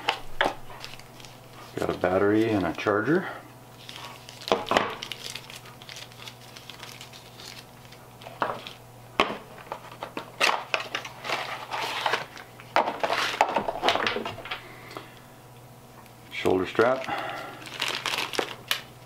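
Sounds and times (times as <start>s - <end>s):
plastic bags crinkling: 3.8s - 8.8s, 16.4s - 19.0s.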